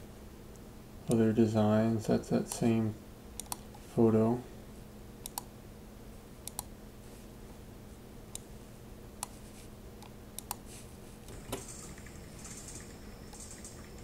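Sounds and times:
faint steady hum: 0.0 - 14.0
computer mouse clicks: 3.4 - 3.7, 5.2 - 5.5, 6.4 - 6.7, 10.0 - 10.6.

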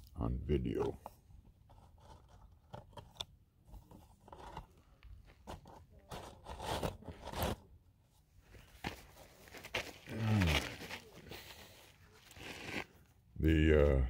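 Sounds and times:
footsteps crunching on gravel: 8.6 - 12.9.

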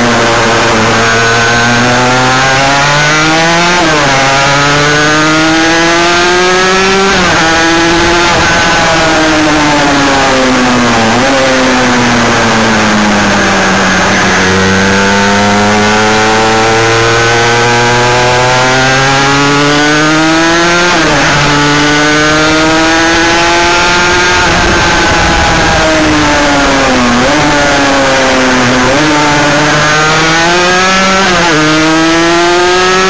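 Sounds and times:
motorcycle engine at speed: 0.0 - 33.0.

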